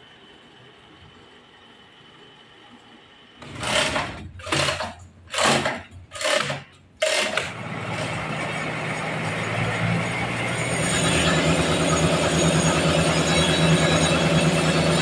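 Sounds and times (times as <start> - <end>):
steady machine noise: 3.4 - 15.0.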